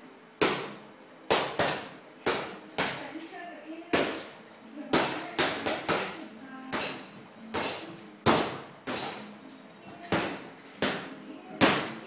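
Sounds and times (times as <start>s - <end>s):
punches thudding on heavy bag: 0.4s - 3.0s, 7.6s - 9.2s.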